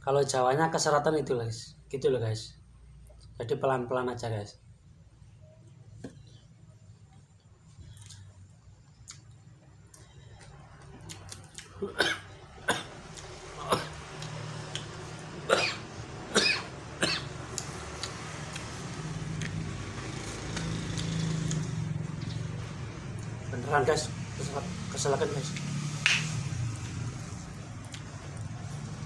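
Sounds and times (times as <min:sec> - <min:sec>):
man coughing hard: 0:11.8 - 0:13.0, 0:13.6 - 0:14.0, 0:15.5 - 0:17.3.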